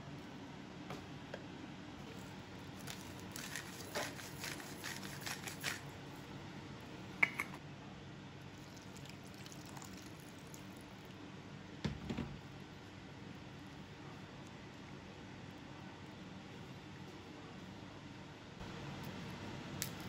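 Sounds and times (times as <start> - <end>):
water poured into glass bowl: 8.6 - 10.8.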